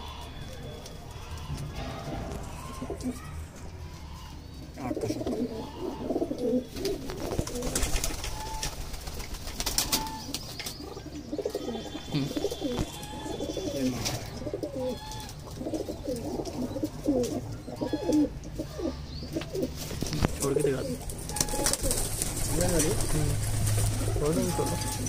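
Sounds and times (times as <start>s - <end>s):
pigeons cooing: 0.0s - 25.0s.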